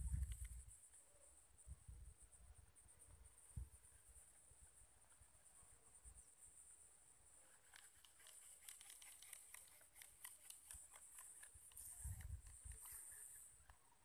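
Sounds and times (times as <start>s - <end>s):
soft ticks and crackles: 0.0s - 1.1s, 6.2s - 13.9s.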